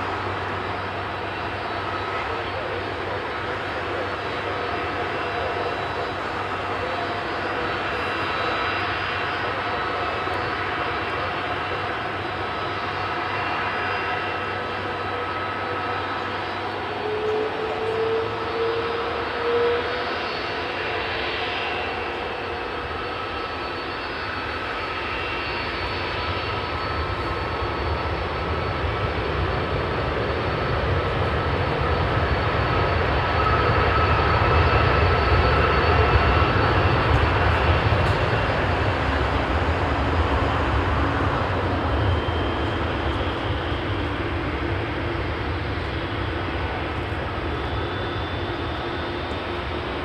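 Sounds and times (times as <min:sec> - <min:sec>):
jet engines rumbling with whine: 0:00.0 - 0:50.0.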